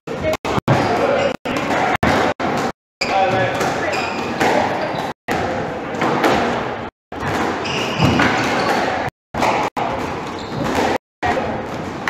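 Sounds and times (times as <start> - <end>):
rackets striking squash ball: 0.5 - 12.0
shoes squeaking on wooden floor: 7.6 - 8.8, 10.3 - 10.9.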